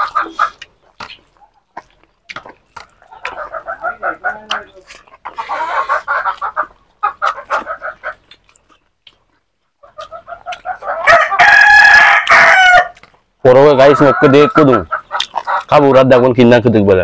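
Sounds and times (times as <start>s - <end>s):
chickens clucking: 0.0s - 16.8s
rooster crowing: 10.8s - 13.0s.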